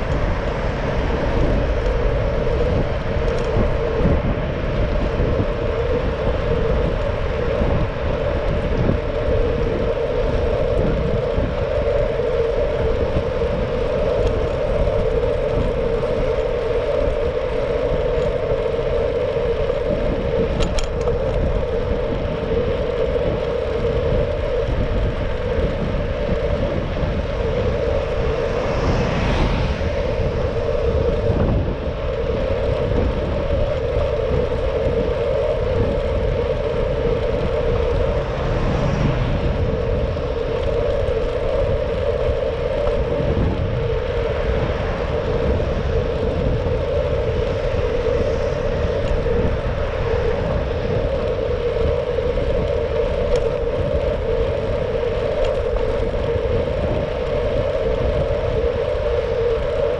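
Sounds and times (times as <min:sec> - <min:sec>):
bicycle riding on road: 0:00.0 - 0:59.9.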